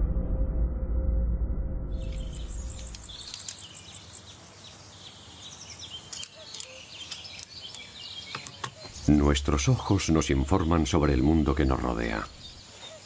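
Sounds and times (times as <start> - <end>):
music: 0.0 - 2.5
bird chirps: 1.9 - 13.0
insect calls: 2.0 - 13.0
steady background hiss: 2.1 - 13.0
light clicks: 2.8 - 3.7.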